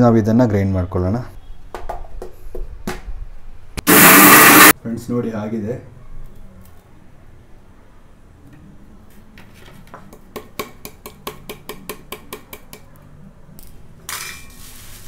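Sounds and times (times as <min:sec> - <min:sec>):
scraping noise: 0:03.8 - 0:04.7.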